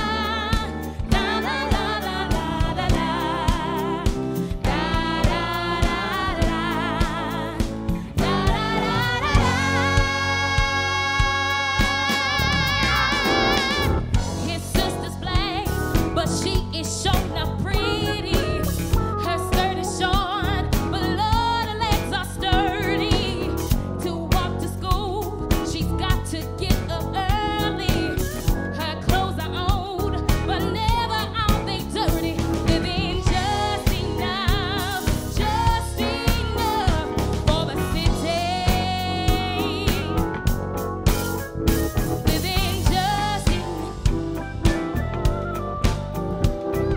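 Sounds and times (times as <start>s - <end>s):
woman singing with vibrato: 0.0s - 7.6s, 8.2s - 18.6s, 24.0s - 40.1s, 42.3s - 44.0s
bass and keyboards: 0.0s - 46.9s
drum kit beat: 0.0s - 46.9s.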